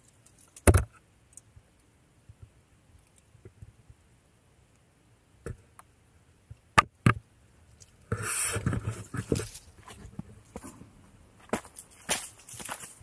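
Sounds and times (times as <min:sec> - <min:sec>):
footsteps on gravel: 0:11.4 - 0:13.0.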